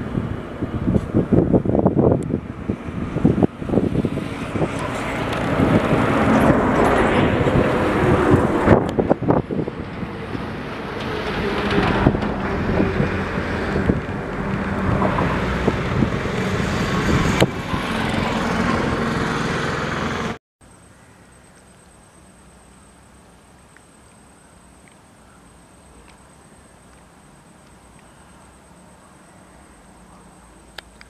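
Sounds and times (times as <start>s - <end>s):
wind on microphone: 0.0s - 19.9s
vehicle running noise: 0.0s - 20.4s.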